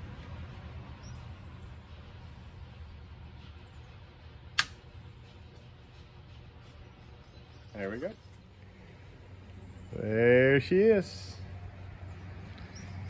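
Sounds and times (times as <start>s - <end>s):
sharp click of part fastening: 4.6s - 4.8s.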